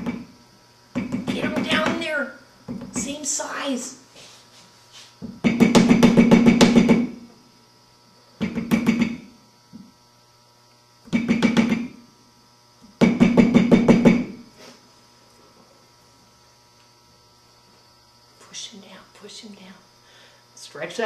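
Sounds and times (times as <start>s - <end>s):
clay knocking on worktable: 0.9s - 2.0s, 5.2s - 7.2s, 11.1s - 11.9s, 13.0s - 14.3s
table ringing: 8.4s - 9.3s, 11.1s - 12.0s.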